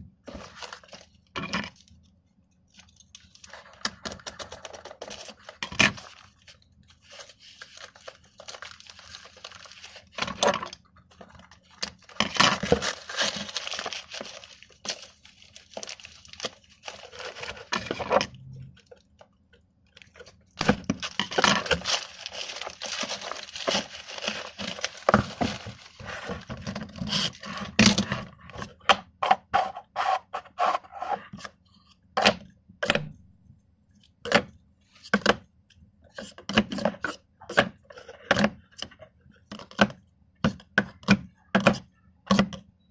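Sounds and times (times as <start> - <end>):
paper wrapping crinkling and tearing: 0.3 - 1.9, 2.7 - 18.2, 20.0 - 27.8.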